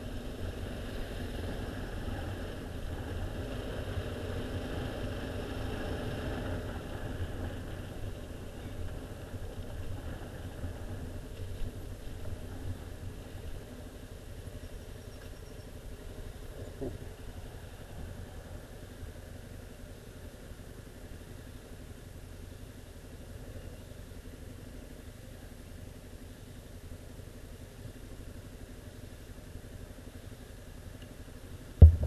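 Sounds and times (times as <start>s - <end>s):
motorcycle engine idling: 6.7s - 32.0s.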